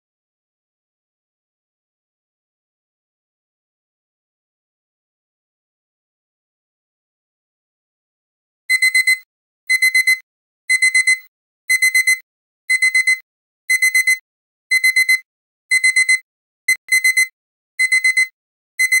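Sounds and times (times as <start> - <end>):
alarm clock beeping: 8.7 - 19.0.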